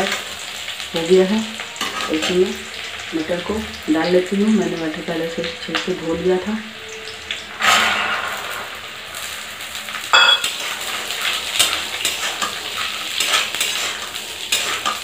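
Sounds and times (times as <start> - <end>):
peas sizzling in oil: 0.0 - 15.0
metal clang: 10.1 - 10.6
spatula scraping a pan: 10.2 - 15.0.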